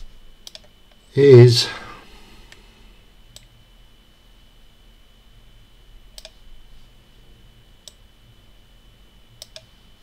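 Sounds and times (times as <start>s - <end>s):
computer mouse clicks: 0.0s - 0.8s, 3.3s - 3.5s, 6.1s - 6.4s, 7.8s - 8.0s, 9.4s - 9.7s
faint steady hum: 0.0s - 10.0s.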